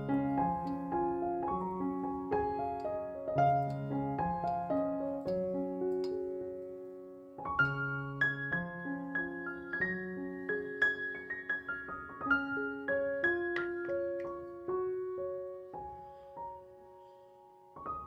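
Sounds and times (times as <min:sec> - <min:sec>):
gentle piano melody: 0:00.0 - 0:18.0.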